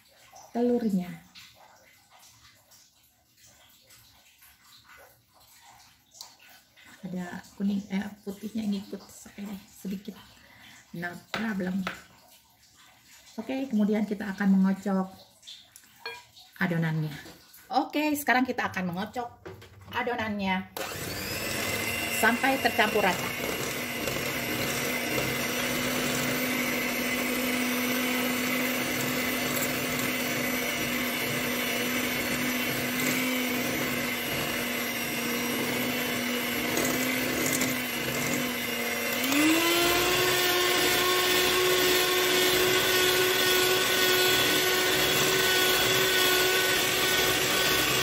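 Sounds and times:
electric hand mixer running: 20.8 - 48.0.

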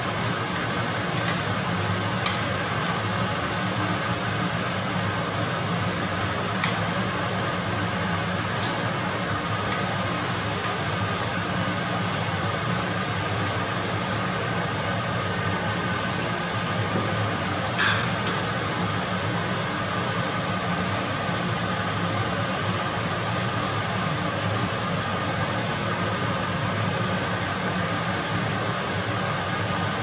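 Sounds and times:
scallops sizzling in hot oil: 0.1 - 17.0
metal tongs knocking on pan: 17.8 - 18.4.

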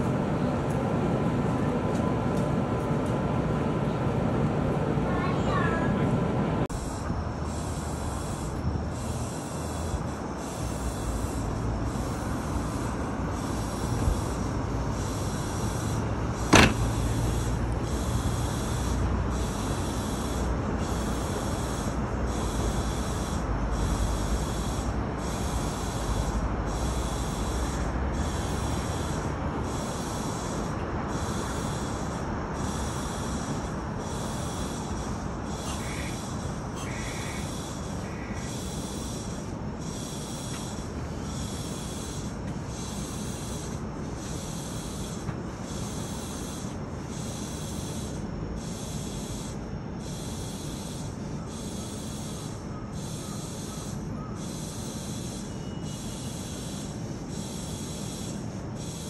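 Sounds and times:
electric train equipment humming: 0.0 - 59.0.

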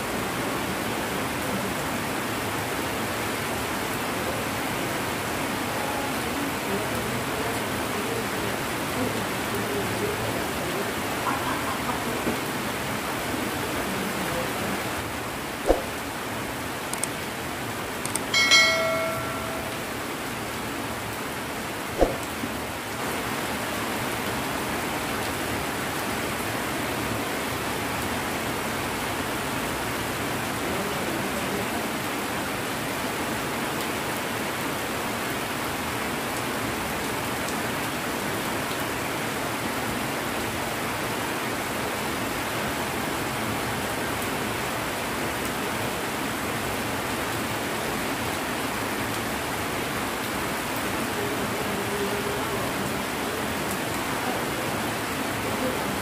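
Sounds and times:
rain falling steadily: 0.0 - 56.0
sharp click: 18.1 - 18.3.

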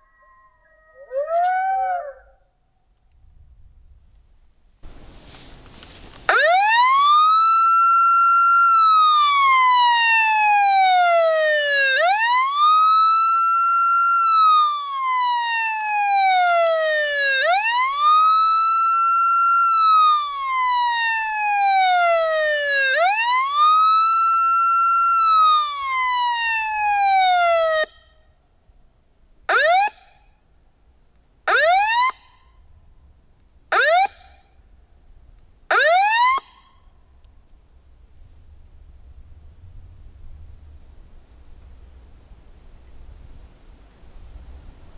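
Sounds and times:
recorded coyote howls: 0.0 - 2.5.

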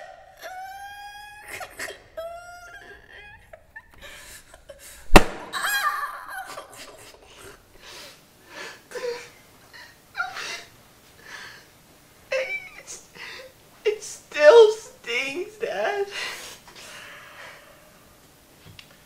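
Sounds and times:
sharp crack: 5.1 - 6.1.

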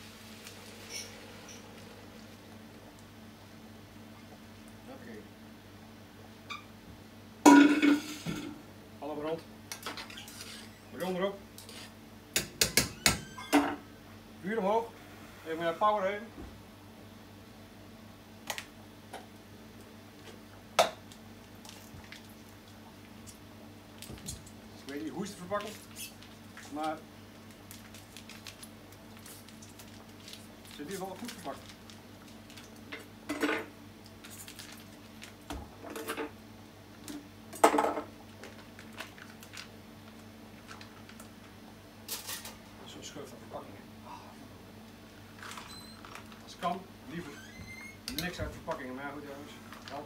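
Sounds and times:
plastic package crackling: 25.5 - 32.8, 34.2 - 35.4.

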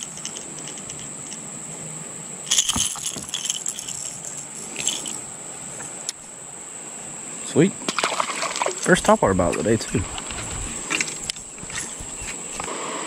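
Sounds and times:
metal gear rattling: 2.5 - 5.2.

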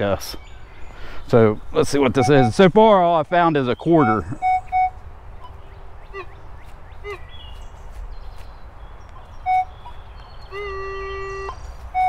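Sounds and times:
metal detector sharp beep: 2.2 - 2.6, 4.0 - 5.0
metal detector steady tone: 2.2 - 2.6, 4.0 - 5.0
metal detector warbling tones: 4.0 - 4.9.

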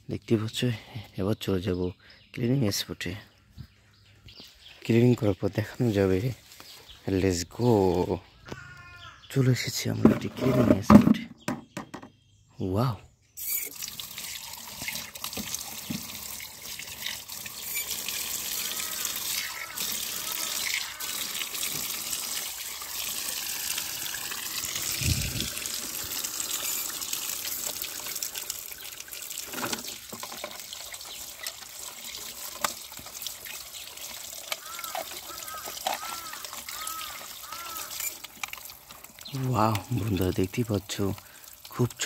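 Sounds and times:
tap water splashing into bucket: 13.6 - 42.0.

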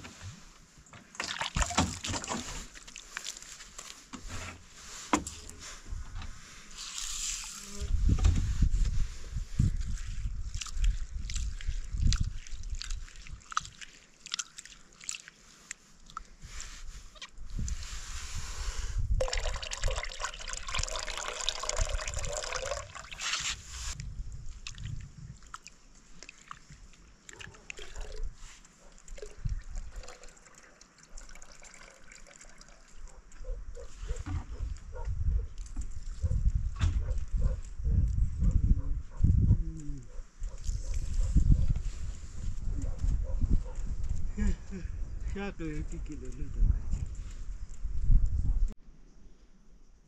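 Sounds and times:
water pouring and trickling: 1.1 - 4.1, 6.8 - 7.7, 8.7 - 18.0, 19.0 - 33.4.

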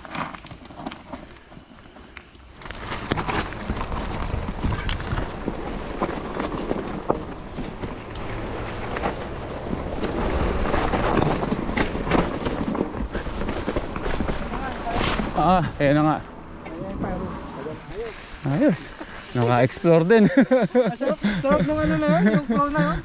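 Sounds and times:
bike knocking and rattling: 0.0 - 17.2
bike tyres rolling over dirt: 0.0 - 23.0
wind buffeting microphone: 2.9 - 15.5.

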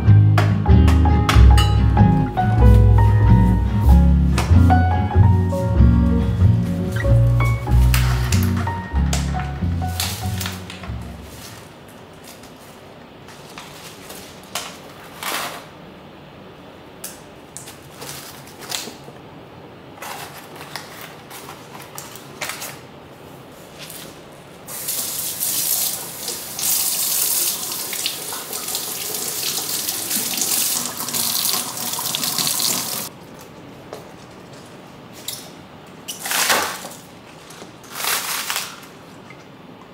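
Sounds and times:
produce bags rustling: 9.9 - 15.7, 36.1 - 39.2
kitchen tap running: 24.7 - 33.1.

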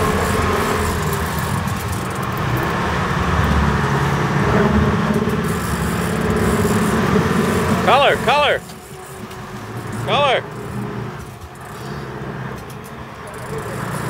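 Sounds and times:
boat engine drone: 0.0 - 14.0.

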